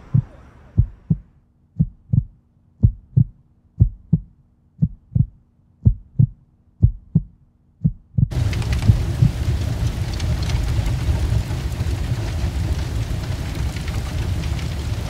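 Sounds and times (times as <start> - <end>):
faint steady hum: 0.0 - 7.3, 8.2 - 15.0
heartbeat thumps: 0.0 - 9.5.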